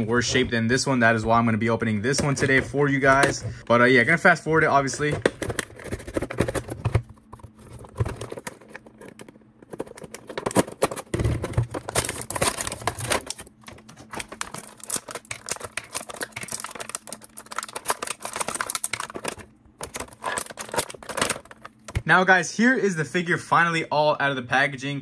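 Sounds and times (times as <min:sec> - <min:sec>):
packaging crinkling and tearing: 0:05.2 - 0:21.9.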